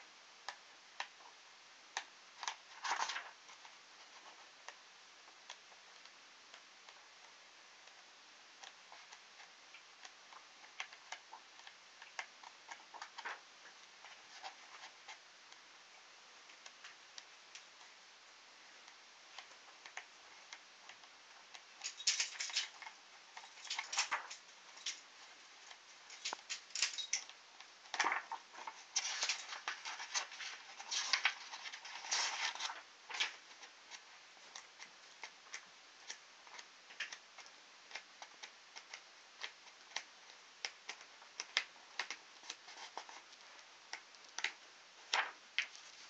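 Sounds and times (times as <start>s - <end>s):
paper pages flicking: 2.0s - 4.3s, 21.5s - 25.0s, 25.7s - 38.1s, 43.9s - 46.0s
paper rustling: 2.4s - 4.5s, 10.7s - 15.2s, 19.4s - 38.0s, 40.9s - 46.0s.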